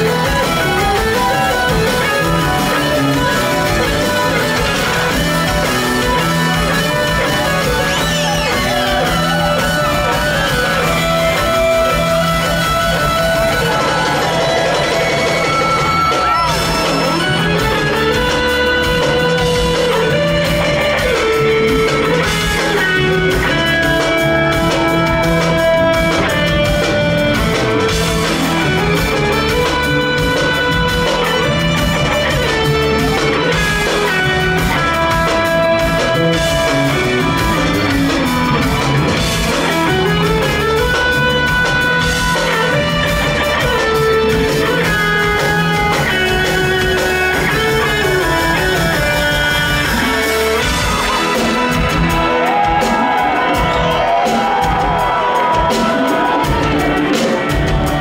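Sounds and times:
lead guitar melody: 0:00.0 - 0:58.0
live band playing: 0:00.0 - 0:58.0.

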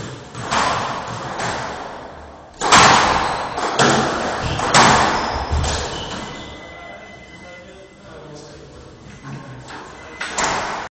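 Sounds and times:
ball hits echoing in a court: 0:00.0 - 0:06.3.

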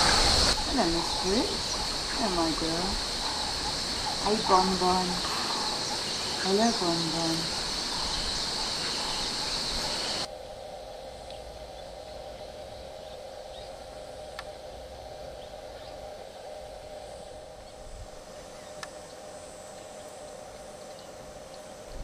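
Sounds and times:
low steady drone: 0:00.0 - 0:22.0
shrill insect chorus: 0:00.0 - 0:22.0
faint chirps and clicks: 0:00.5 - 0:10.3, 0:11.2 - 0:11.9, 0:13.5 - 0:14.6, 0:18.6 - 0:19.2.

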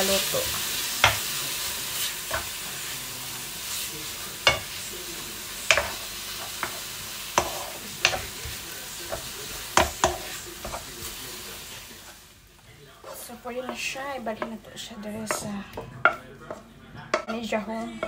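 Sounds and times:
beef sizzling in a pan: 0:00.0 - 0:17.7
utensil knocking against pan: 0:07.4 - 0:10.8.

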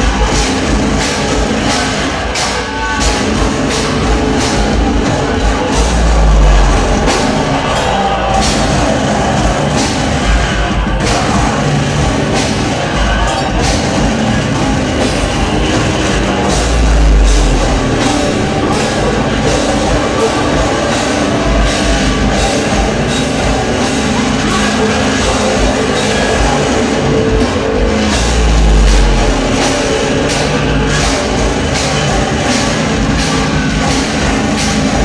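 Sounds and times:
cymbal hits: 0:00.0 - 0:10.4, 0:13.3 - 0:35.0
punk band playing live: 0:00.0 - 0:35.0
deep bass drops: 0:04.1 - 0:09.9, 0:14.0 - 0:20.8, 0:27.8 - 0:31.5.

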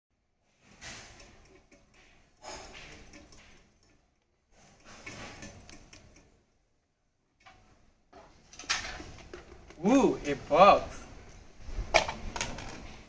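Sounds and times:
rope sliding through pulley: 0:04.5 - 0:06.2.

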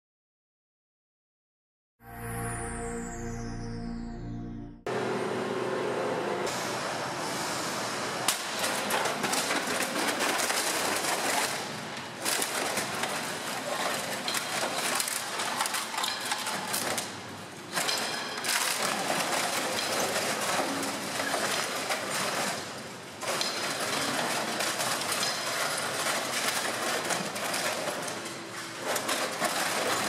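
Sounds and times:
metal clanks and bangs: 0:08.2 - 0:30.0.

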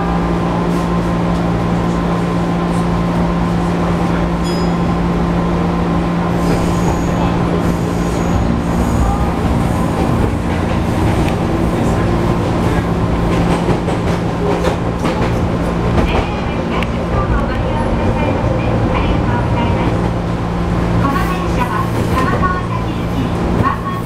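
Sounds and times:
train motor hum: 0:00.0 - 0:24.0
wheels rumbling on rail: 0:00.0 - 0:24.0
high-pitched wheel squeal: 0:06.4 - 0:09.4.

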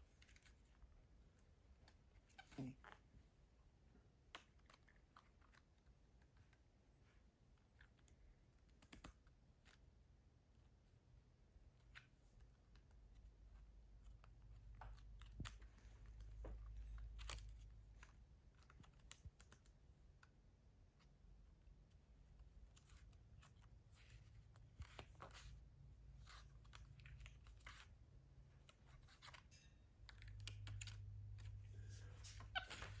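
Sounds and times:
small irregular clicks: 0:07.6 - 0:09.8, 0:11.8 - 0:21.1
paper rustling: 0:22.6 - 0:33.0.

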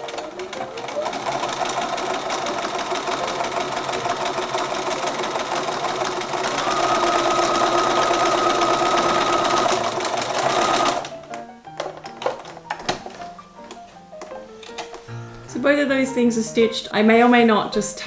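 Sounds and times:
sewing machine running: 0:00.0 - 0:11.2.

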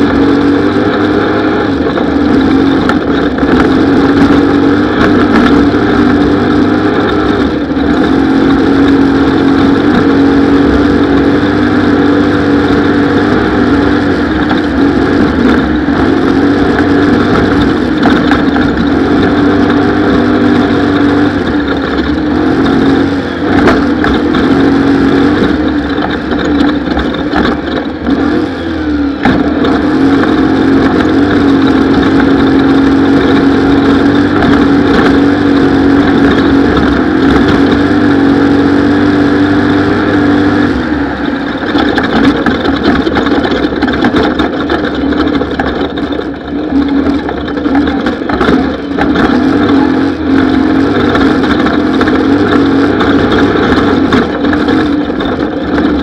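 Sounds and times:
race vehicle engine revving: 0:00.0 - 0:56.0.

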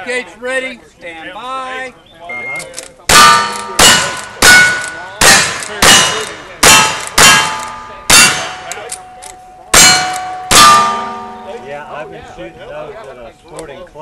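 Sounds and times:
rifle shots: 0:03.1 - 0:08.9
steel target ringing: 0:03.1 - 0:13.0.

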